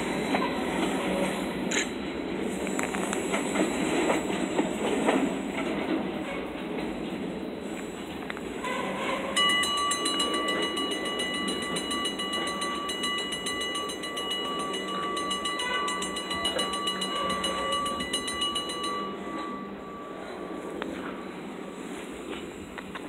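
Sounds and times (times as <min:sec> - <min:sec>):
train rumbling: 0:00.0 - 0:23.0
railroad crossing bell ringing: 0:08.5 - 0:23.0.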